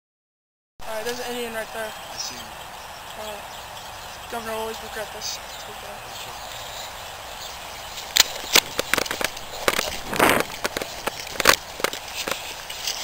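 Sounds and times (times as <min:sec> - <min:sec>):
light outdoor hiss: 0:00.8 - 0:13.0
footsteps rustling through leaves: 0:04.4 - 0:13.0.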